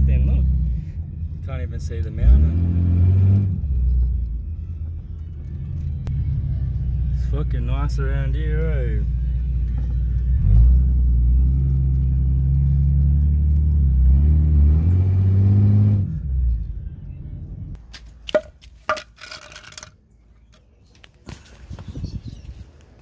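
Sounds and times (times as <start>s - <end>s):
car engine and road noise: 0.0s - 23.0s
wooden block knocks: 18.2s - 19.9s.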